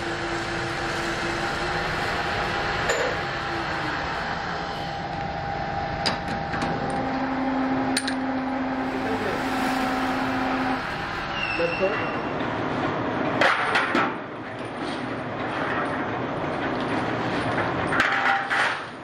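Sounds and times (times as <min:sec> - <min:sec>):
metal lathe running: 0:00.0 - 0:13.4.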